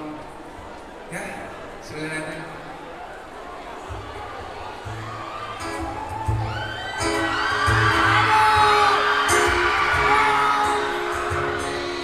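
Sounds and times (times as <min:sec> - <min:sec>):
acoustic guitar playing: 0:03.9 - 0:12.0
audience cheering and screaming: 0:03.9 - 0:12.0.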